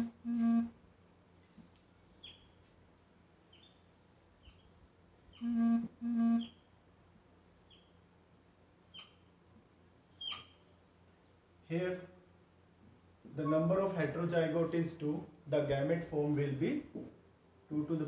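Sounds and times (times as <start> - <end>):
short flat buzzing tones: 0.0 - 0.8, 5.3 - 6.6
small birds chirping: 2.1 - 5.6, 6.3 - 6.7, 7.6 - 8.0, 8.9 - 9.3, 10.1 - 11.4.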